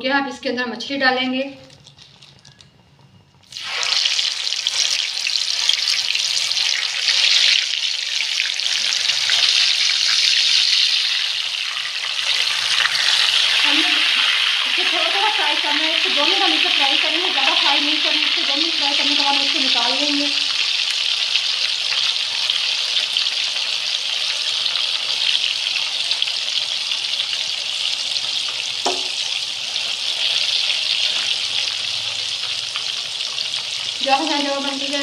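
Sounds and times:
fish sizzling in hot oil: 3.4s - 35.0s.

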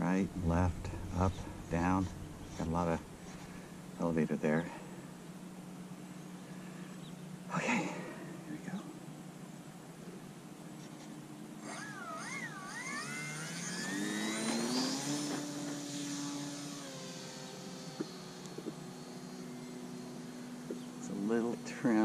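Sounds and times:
model plane electric motor whine: 11.6s - 22.0s.

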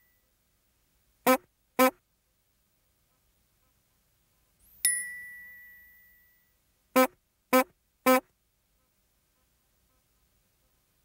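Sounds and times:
short honks: 1.2s - 2.0s, 7.0s - 8.3s
bell-like ding: 4.8s - 6.5s.

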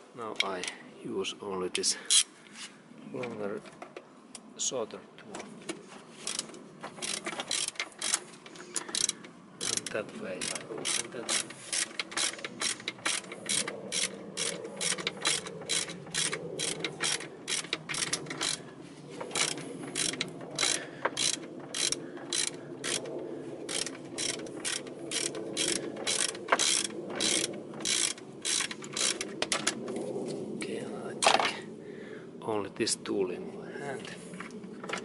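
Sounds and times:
ratchet wrench clicking: 6.3s - 8.2s, 8.8s - 18.6s, 19.3s - 23.1s, 23.7s - 29.7s.

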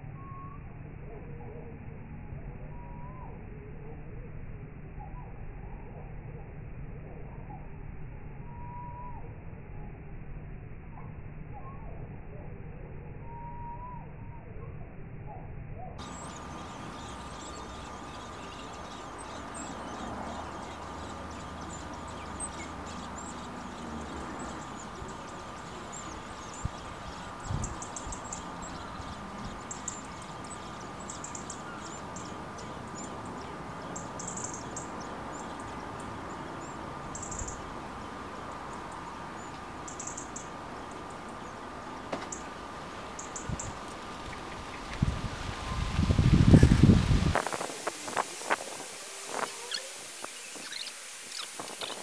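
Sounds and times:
faint constant tone: 0.0s - 52.0s
nestlings cheeping: 16.0s - 37.6s, 47.4s - 52.0s
background hiss: 16.0s - 52.0s.

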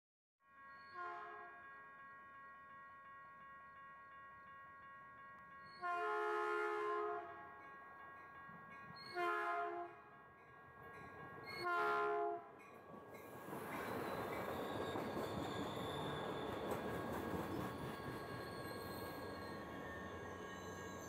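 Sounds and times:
train horn blasts: 0.4s - 7.7s, 9.1s - 10.1s, 11.6s - 12.6s
train cars rushing past: 12.6s - 21.0s
crossing warning bell ringing: 13.8s - 21.0s.

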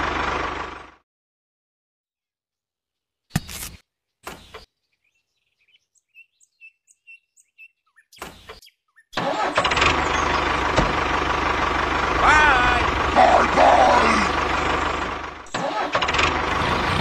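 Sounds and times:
diesel tractor engine chugging: 0.0s - 1.0s, 9.2s - 17.0s.

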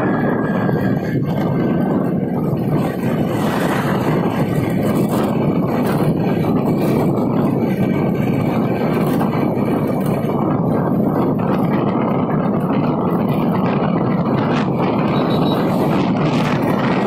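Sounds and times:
motorbike engine: 0.0s - 17.0s
road noise: 0.0s - 17.0s
wind buffeting microphone: 0.0s - 17.0s.

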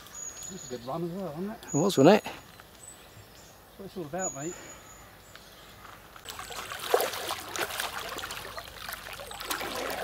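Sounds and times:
fish splashing at water surface: 6.3s - 10.0s.

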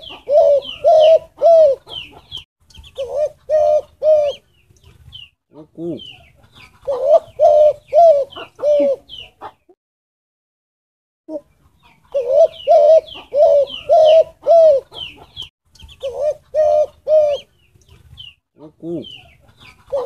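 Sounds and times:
dove cooing: 0.0s - 2.4s, 3.0s - 4.4s, 5.6s - 9.6s, 11.3s - 15.4s, 16.0s - 17.5s, 18.6s - 20.0s.

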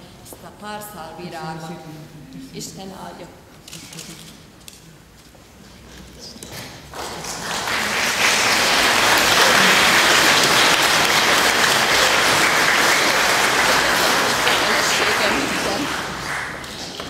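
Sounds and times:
large crowd applauding: 6.9s - 17.0s.

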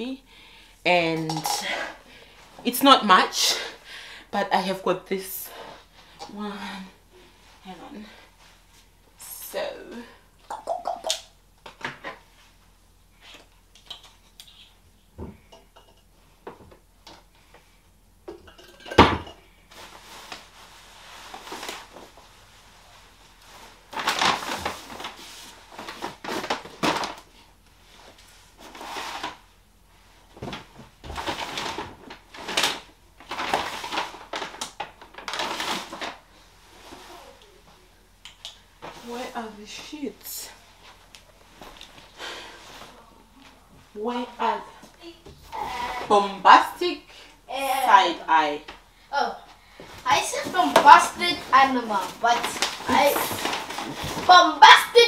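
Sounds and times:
plastic packaging rustling: 19.7s - 29.4s, 30.2s - 37.4s, 49.8s - 55.0s.

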